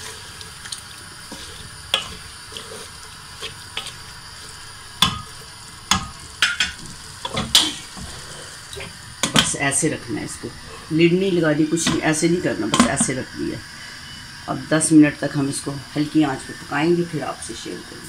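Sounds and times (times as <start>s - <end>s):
hot oil sizzling: 0.0s - 18.0s
wooden spoon scraping metal pot: 1.2s - 9.5s.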